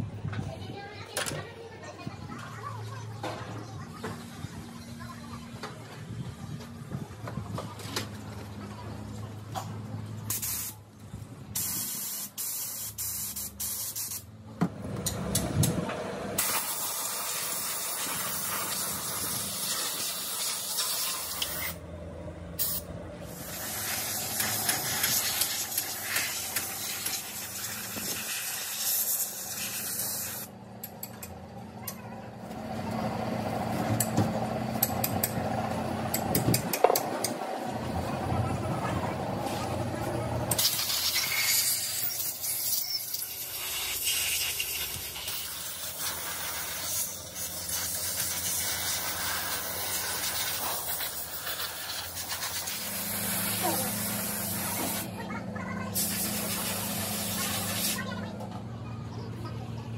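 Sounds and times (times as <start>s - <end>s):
spray gun hissing: 11.6s - 14.2s, 22.6s - 30.5s, 43.5s - 55.1s, 56.0s - 58.1s.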